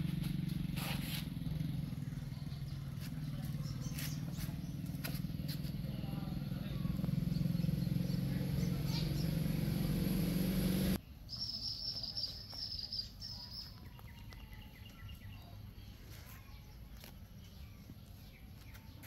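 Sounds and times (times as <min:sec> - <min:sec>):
loud low steady drone: 0:00.0 - 0:11.0
high fluttering trill of chirps: 0:05.9 - 0:13.7.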